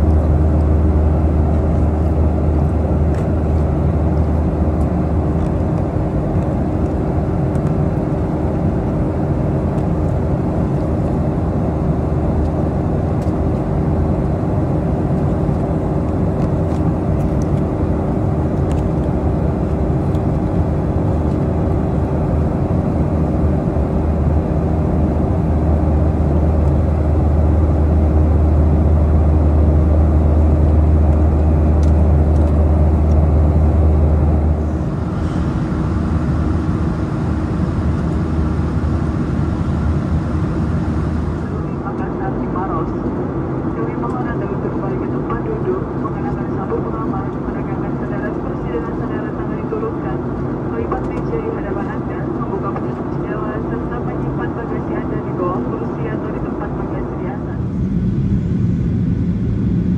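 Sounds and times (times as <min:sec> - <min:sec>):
airflow rushing over fuselage: 0:00.0 - 0:41.8, 0:57.4 - 0:59.9
jet engines humming: 0:00.0 - 0:59.9.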